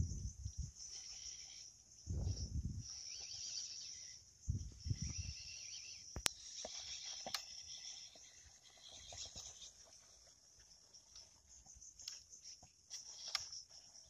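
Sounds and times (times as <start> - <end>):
insects chirring: 0.0 - 14.0
sharp clicks: 6.1 - 7.7, 12.0 - 12.2, 12.9 - 13.7.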